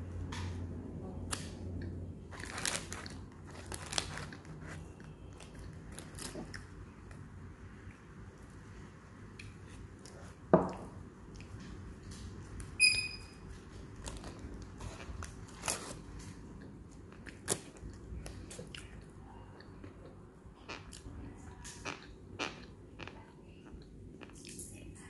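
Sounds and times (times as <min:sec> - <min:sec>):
paper rustling: 0:02.3 - 0:04.9.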